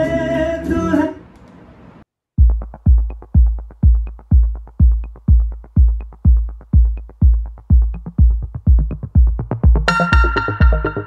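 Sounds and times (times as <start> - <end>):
electronic song through speakers: 2.4 - 11.0
heavy kick drum thumps: 2.4 - 11.0.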